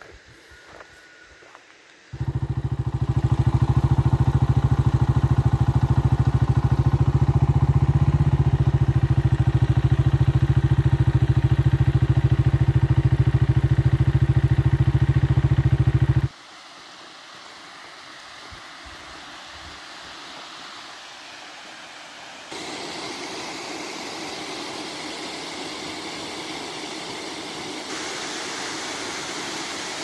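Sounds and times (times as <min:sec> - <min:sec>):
motorcycle engine idling: 0:02.1 - 0:16.3.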